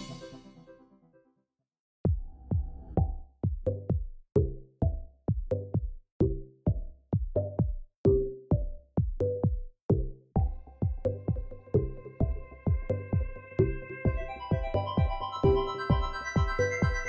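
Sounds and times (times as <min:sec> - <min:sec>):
electronic music with drum beat: 0:00.0 - 0:00.6, 0:02.1 - 0:17.0.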